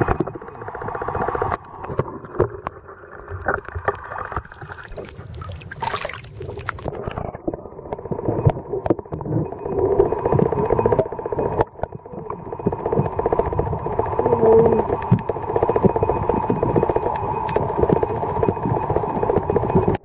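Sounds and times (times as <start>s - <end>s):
water sloshing around boat: 4.4s - 7.0s.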